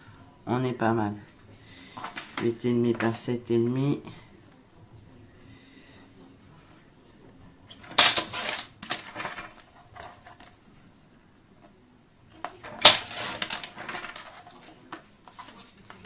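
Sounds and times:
paper rustling: 1.8 - 3.3, 7.8 - 10.9, 12.4 - 16.0.

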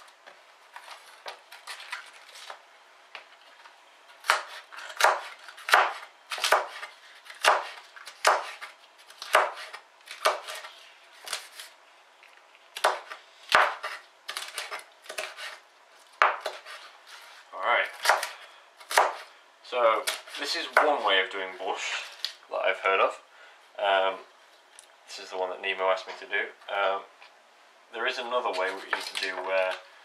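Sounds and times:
knife chopping cabbage on board: 4.2 - 11.7, 12.8 - 15.6, 16.2 - 16.9, 17.9 - 19.3.

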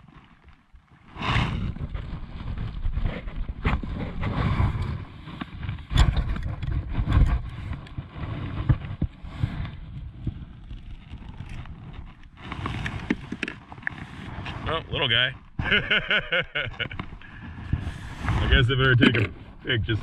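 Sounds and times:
sleeve rubbing against camera: 10.7 - 15.7, 16.6 - 20.0.

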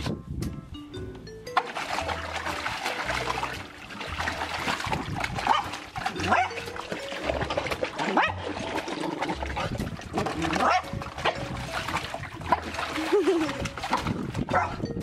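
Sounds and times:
water splashing in a paddling pool: 1.5 - 15.0.

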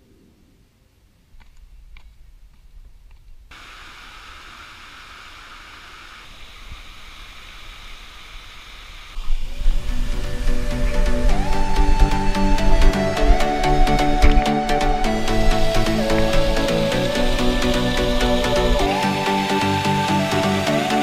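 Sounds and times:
low microphone rumble: 9.2 - 19.3.

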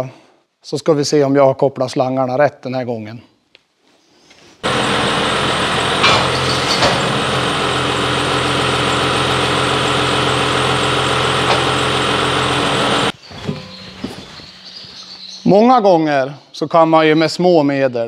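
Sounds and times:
tractor diesel engine idling: 4.6 - 13.2
short knocks: 5.7 - 7.5.

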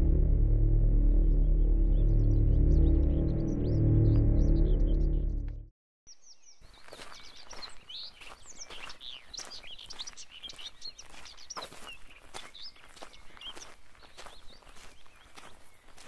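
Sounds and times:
small birds chirping: 6.1 - 16.0
footsteps on pavement: 6.6 - 16.0.

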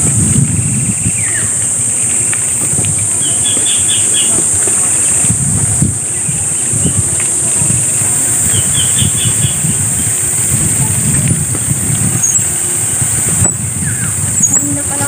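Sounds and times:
insects droning: 0.0 - 15.0
wind rumble on microphone: 0.0 - 15.0
bird chirping: 0.9 - 5.4, 6.0 - 15.0.

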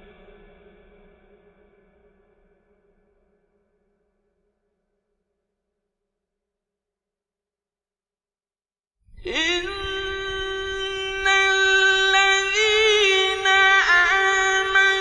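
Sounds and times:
man reciting melodically: 9.2 - 15.0.

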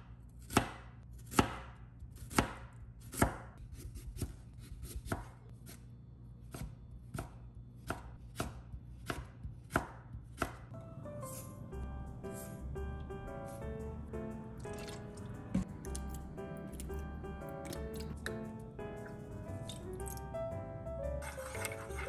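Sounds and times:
soft music: 10.7 - 22.0.

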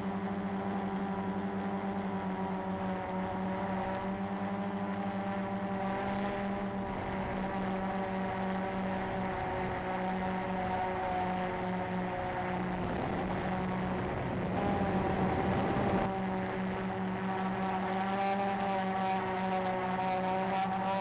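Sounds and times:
drone motors buzzing: 0.0 - 21.0.

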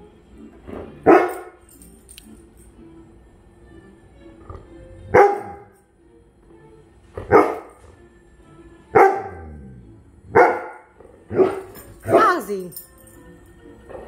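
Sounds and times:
dog barking: 1.0 - 1.6, 5.1 - 5.7, 7.3 - 7.8, 8.9 - 9.5, 10.3 - 12.4.

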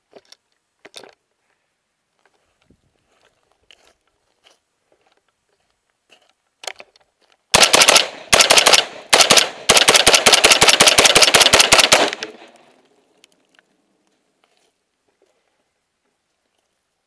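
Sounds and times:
rifle shots: 7.5 - 12.6.

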